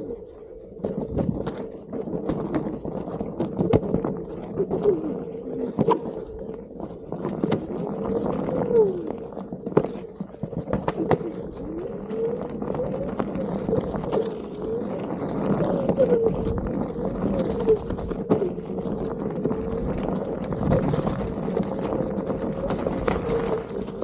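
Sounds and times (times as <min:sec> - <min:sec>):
board knocking over rocks: 0:07.0 - 0:24.0.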